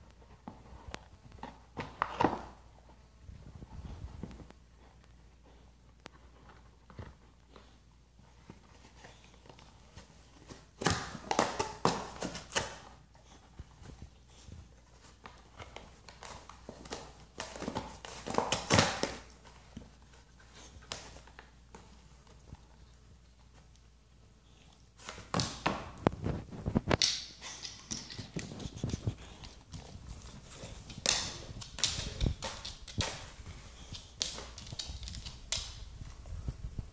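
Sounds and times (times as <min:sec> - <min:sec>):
dog chewing cardboard: 0:05.7 - 0:22.2, 0:27.1 - 0:35.9.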